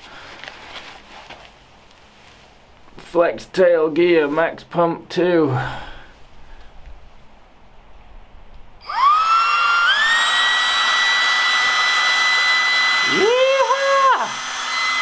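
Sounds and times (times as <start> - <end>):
air pump motor whining: 8.8 - 15.0.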